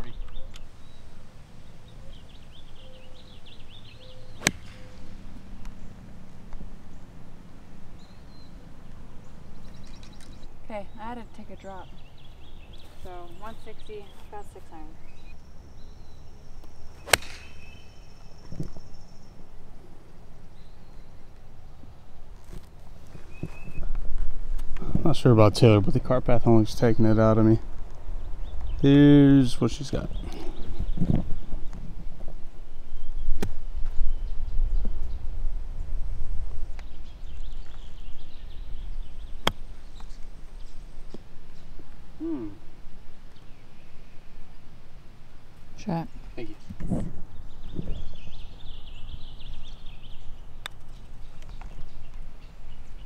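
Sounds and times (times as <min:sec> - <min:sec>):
birds chirping faintly: 0:00.0 - 0:53.0
golf club striking ball: 0:04.3 - 0:05.8, 0:17.0 - 0:18.0.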